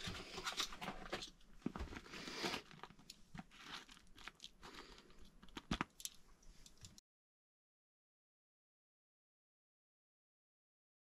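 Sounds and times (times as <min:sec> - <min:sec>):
paper plate crinkling: 0:00.0 - 0:07.0.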